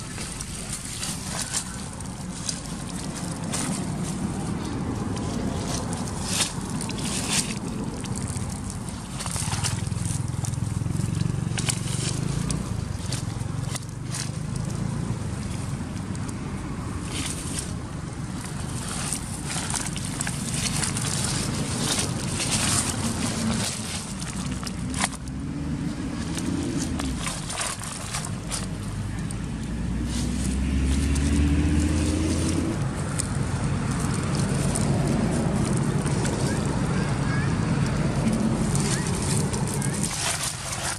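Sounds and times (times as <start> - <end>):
dry leaves crunching: 0.0 - 40.9
vehicle engine passing by: 0.0 - 40.9
wind rumbling on microphone: 0.0 - 40.9.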